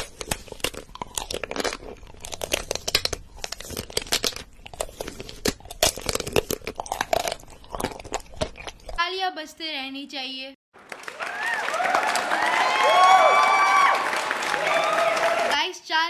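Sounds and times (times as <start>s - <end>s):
crunching and crackling: 0.0s - 9.0s.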